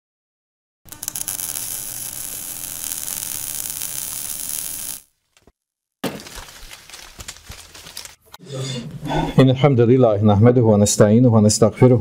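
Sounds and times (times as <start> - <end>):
steady hiss: 0.9 - 5.1.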